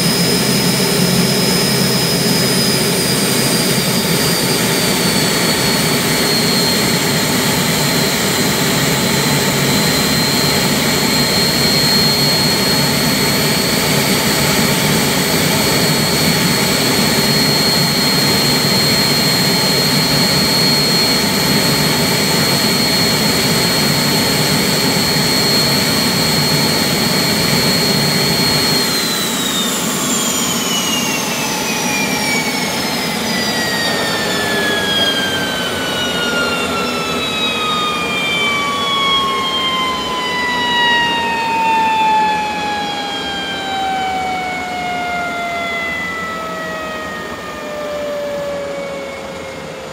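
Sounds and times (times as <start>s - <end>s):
gas turbine engine whine: 0.0s - 49.9s
turbine exhaust roar: 0.0s - 49.9s.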